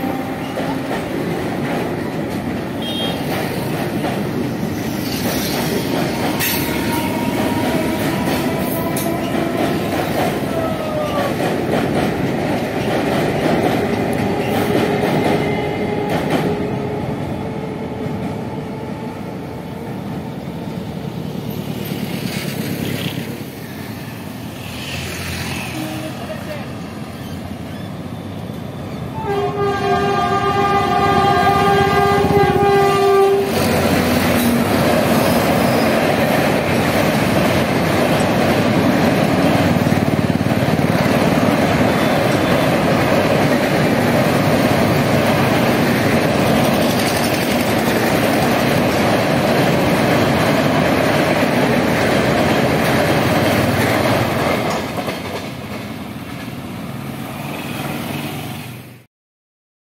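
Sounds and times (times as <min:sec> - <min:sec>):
train horn blast: 0:00.0 - 0:00.8, 0:02.8 - 0:03.3, 0:06.1 - 0:11.2, 0:25.6 - 0:26.4, 0:29.1 - 0:34.7
train wheels clattering on bridge: 0:00.0 - 0:16.8, 0:32.2 - 0:56.6.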